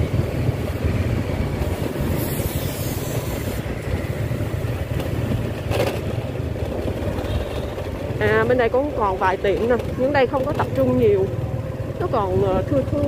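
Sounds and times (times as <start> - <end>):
motorbike engine and road rumble: 0.0 - 13.0
wind buffeting microphone: 0.0 - 13.0
bright hiss: 2.0 - 3.7.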